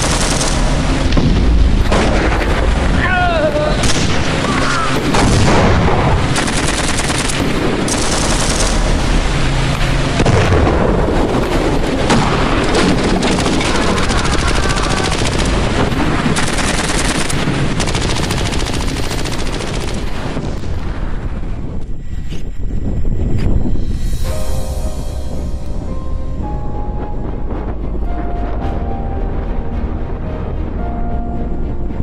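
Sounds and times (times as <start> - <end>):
machine-gun fire: 0.0 - 2.8, 5.1 - 9.2, 12.1 - 20.7
heavy gunshots: 0.0 - 3.0, 3.7 - 20.8.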